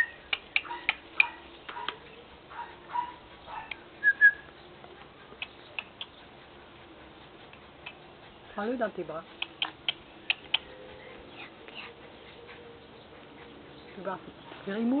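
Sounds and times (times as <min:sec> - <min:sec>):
mouth clicks: 0:00.0 - 0:02.0, 0:03.6 - 0:06.3, 0:09.3 - 0:12.0
high whistled chirps: 0:04.0 - 0:04.5.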